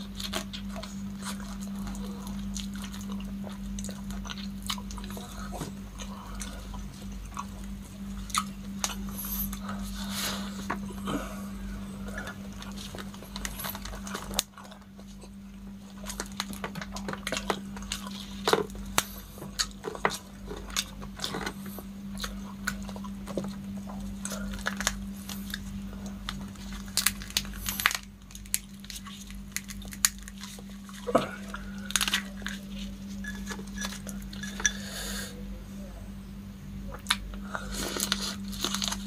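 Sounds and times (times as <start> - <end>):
chewing: 0.0 - 34.8, 36.9 - 39.0
steady low hum: 0.0 - 39.0
prawn shells cracking: 12.0 - 34.8, 37.0 - 39.0.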